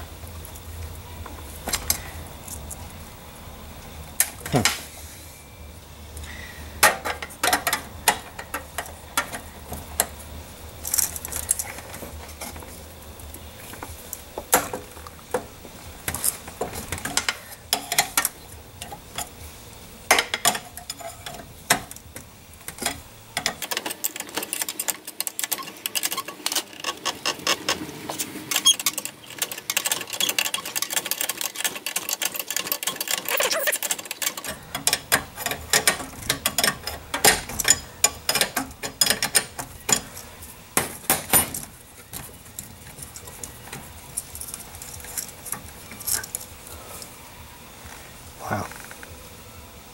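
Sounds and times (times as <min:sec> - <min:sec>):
low background hum: 0:00.0 - 0:30.6, 0:33.1 - 0:49.9
metal tool clicks and clinks: 0:32.9 - 0:40.2.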